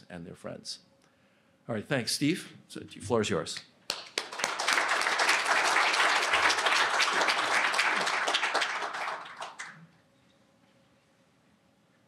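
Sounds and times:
audience applauding: 3.9s - 9.8s.

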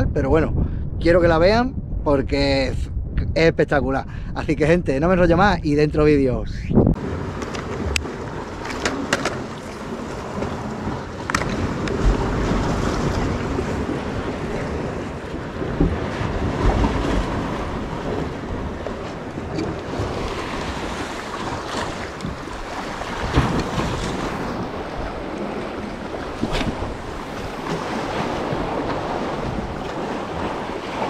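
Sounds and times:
wind buffeting microphone: 0.0s - 31.0s
surf breaking on shore: 7.0s - 31.0s.

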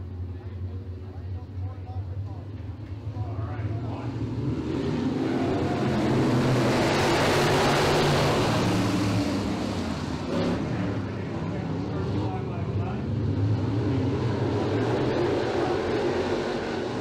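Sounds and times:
race car engines passing: 0.0s - 17.0s.

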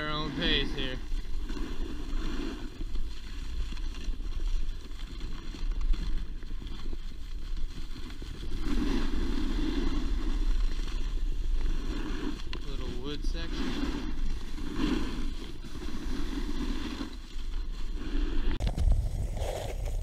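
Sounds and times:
snowboard scraping over snow: 0.0s - 20.0s
wind on microphone: 17.9s - 20.0s.

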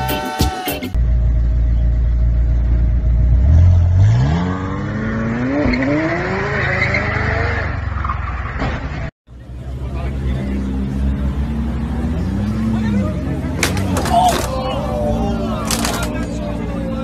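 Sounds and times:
car engine accelerating: 9.4s - 17.0s
car crash crunch: 13.5s - 14.9s, 15.5s - 16.4s
tyres squealing: 13.5s - 16.4s.

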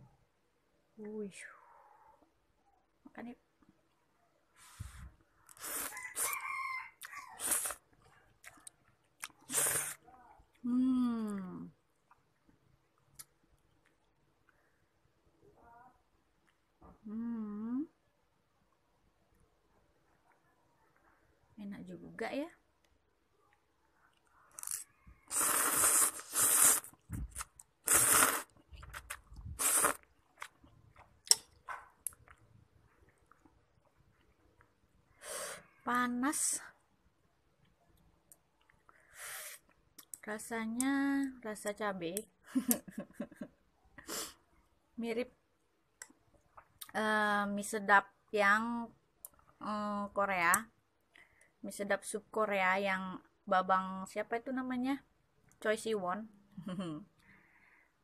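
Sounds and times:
person slurping noodles: 4.7s - 6.4s, 7.4s - 7.9s, 9.3s - 10.0s, 24.6s - 30.4s
rooster crowing: 5.9s - 7.5s
person chewing: 7.0s - 10.6s, 24.1s - 34.4s.

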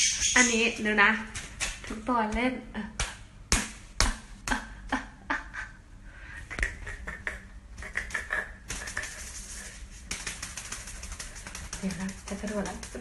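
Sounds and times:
cat wand toy clicking and tapping: 10.1s - 13.0s.

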